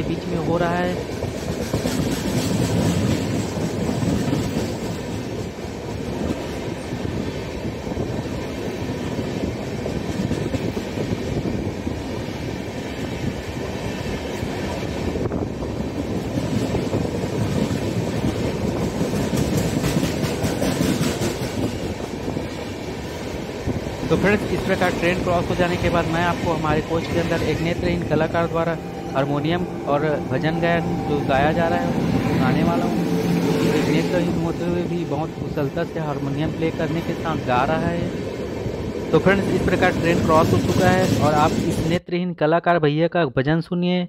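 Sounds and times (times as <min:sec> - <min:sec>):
wheels rushing on rail: 0:00.0 - 0:42.0
clatter over rail joints: 0:01.0 - 0:06.6, 0:16.3 - 0:23.2, 0:39.2 - 0:42.0.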